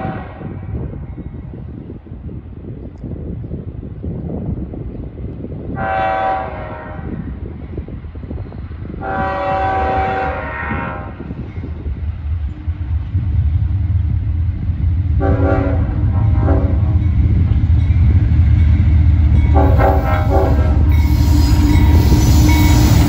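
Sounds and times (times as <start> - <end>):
locomotive air horn blasts: 0.0 - 0.6, 5.8 - 7.2, 9.0 - 11.3, 15.2 - 17.0, 19.5 - 23.0
train rumble: 0.0 - 23.0.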